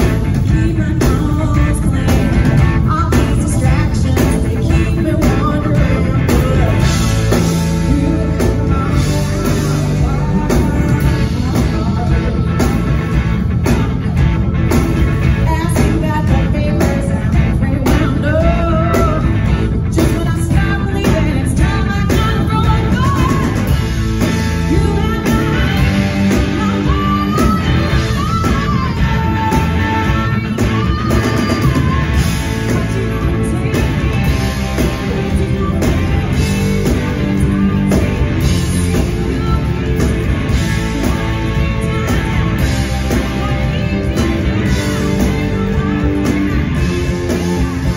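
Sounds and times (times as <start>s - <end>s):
electric guitar: 0.0s - 47.9s
live blues-rock band: 0.0s - 47.9s
woman singing: 0.0s - 47.9s.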